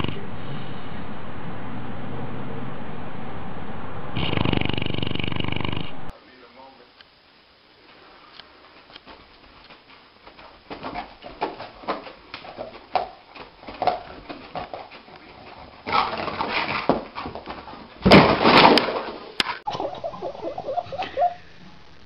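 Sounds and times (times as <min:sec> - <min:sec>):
paws scuffing carpet: 0:08.6 - 0:18.0.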